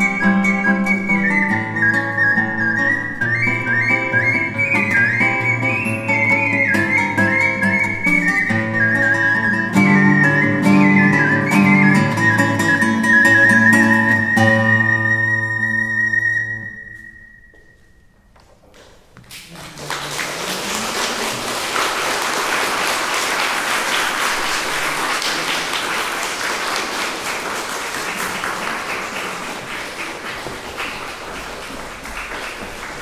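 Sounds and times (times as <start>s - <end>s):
ocarina and guitar music: 0.0s - 18.2s
audience applauding: 18.8s - 33.0s.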